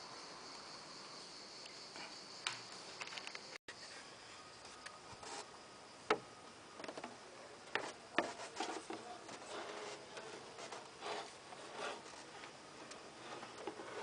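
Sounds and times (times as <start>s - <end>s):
fan blades knocking and rubbing: 6.8s - 14.0s.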